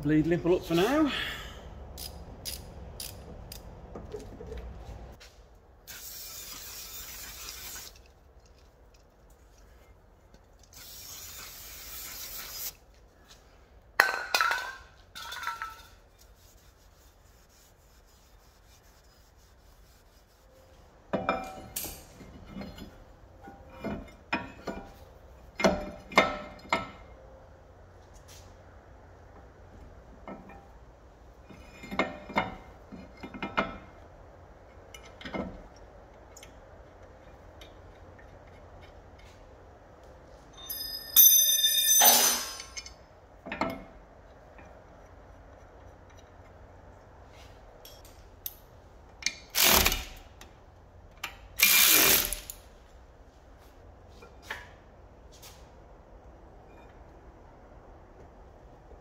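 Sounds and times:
metallic clanks knocks and scrapes: 21.1s - 27.2s, 30.2s - 39.8s, 41.7s - 48.3s.

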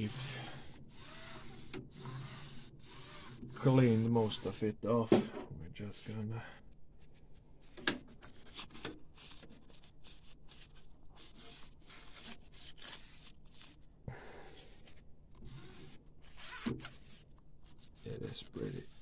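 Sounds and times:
rustling and rubbing: 7.0s - 19.0s.

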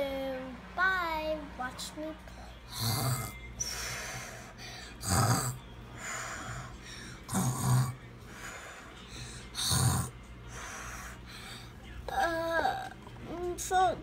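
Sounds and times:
heavy breathing: 3.6s - 11.8s.

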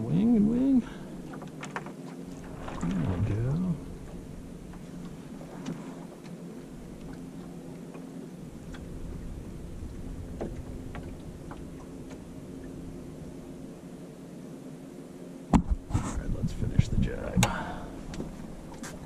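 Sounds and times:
water lapping along hull: 0.0s - 19.0s
low rumble: 2.2s - 14.3s.

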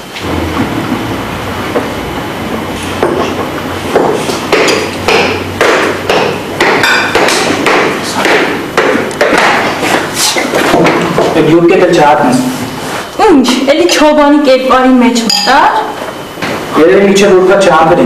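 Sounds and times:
sharp ringing knocks: 3.0s - 9.7s.

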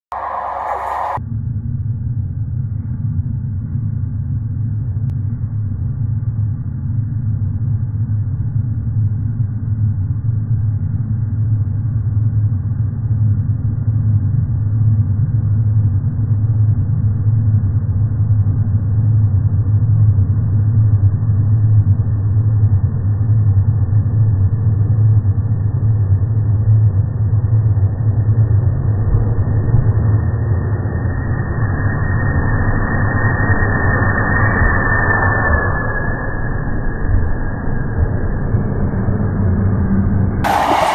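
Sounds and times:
slowed passenger train rumble: 0.1s - 1.2s, 38.0s - 40.9s.

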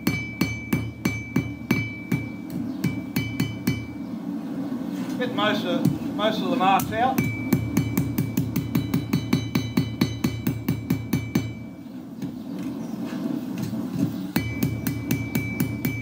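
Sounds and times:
anvil ringing: 0.0s - 4.0s, 7.2s - 11.8s, 14.3s - 16.0s
hammer striking on anvil: 0.0s - 4.0s, 6.8s - 11.7s, 13.6s - 16.0s.

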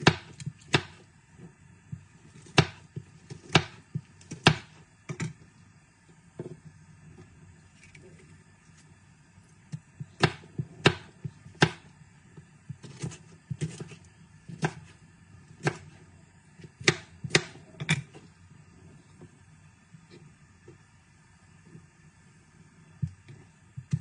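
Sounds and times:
knife chopping on plastic board: 0.0s - 1.0s, 2.4s - 4.8s, 10.2s - 11.9s, 12.8s - 14.9s, 15.6s - 15.9s, 16.8s - 18.0s.

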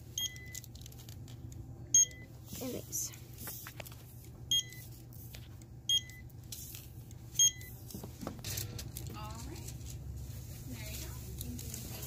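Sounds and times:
steady low hum: 0.0s - 12.0s
barcode scanner beeping: 0.2s - 0.7s, 1.9s - 2.3s, 4.5s - 4.9s, 5.9s - 6.3s, 7.3s - 7.8s.

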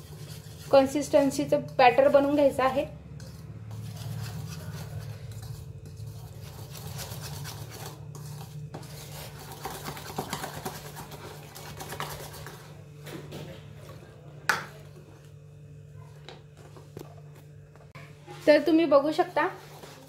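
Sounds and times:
whisk beating batter in a bowl: 0.0s - 12.8s.

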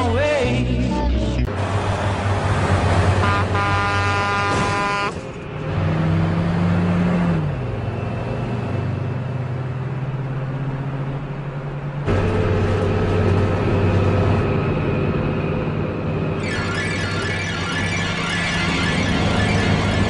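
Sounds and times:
truck and car engines droning: 0.0s - 20.0s.

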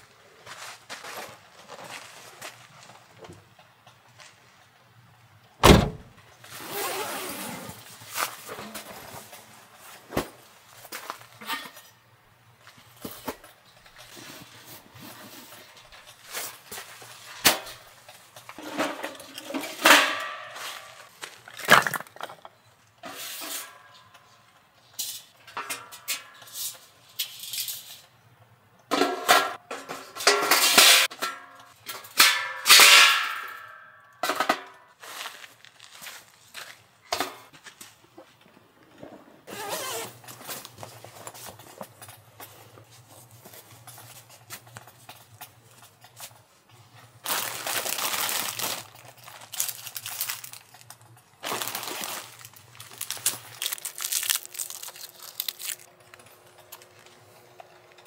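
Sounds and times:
firewood clattering into metal: 17.4s - 22.6s, 28.9s - 34.8s.

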